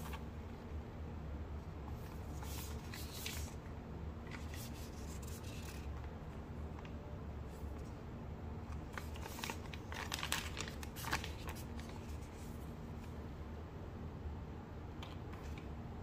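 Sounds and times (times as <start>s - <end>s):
steady low hum: 0.0s - 16.0s
foil sachets crinkling: 8.8s - 12.1s.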